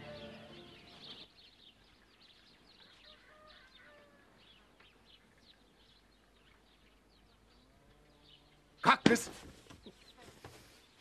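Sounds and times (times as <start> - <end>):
soft music: 0.0 - 1.3
small birds chirping: 0.0 - 11.0.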